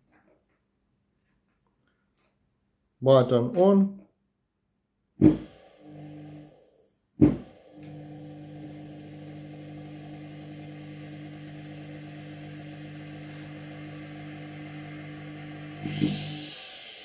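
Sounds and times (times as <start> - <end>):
washing machine motor humming: 5.2 - 17.0.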